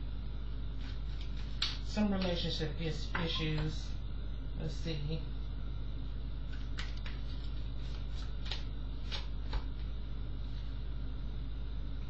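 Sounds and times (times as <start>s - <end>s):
steady low hum: 0.0s - 12.0s
cards clicking and sliding: 6.5s - 9.7s.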